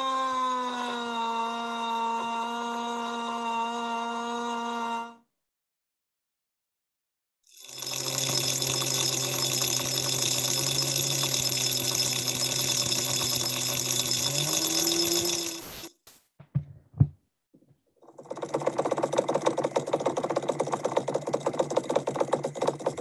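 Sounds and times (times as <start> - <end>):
fast motorised rattle: 7.5 - 15.9, 18.0 - 23.0
electric motor whirring buzz: 7.6 - 15.9.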